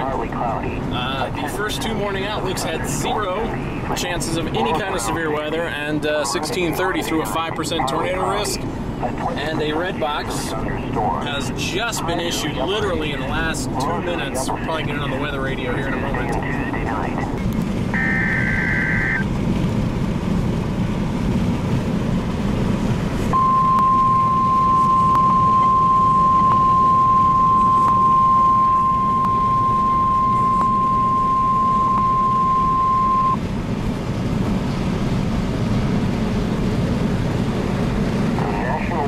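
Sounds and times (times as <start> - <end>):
highway road noise: 0.0 - 39.0
data tones burst: 18.0 - 19.2, 23.4 - 33.4
single-pitch warning alarm tone: 23.4 - 33.4.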